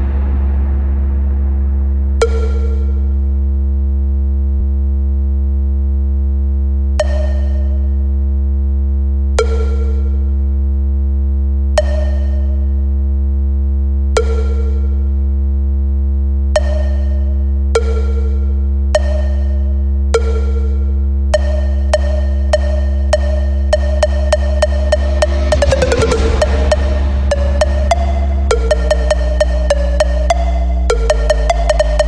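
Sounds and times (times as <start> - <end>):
low drone: 0.0 - 4.6, 16.6 - 32.0
struck ringing note: 21.4 - 31.8.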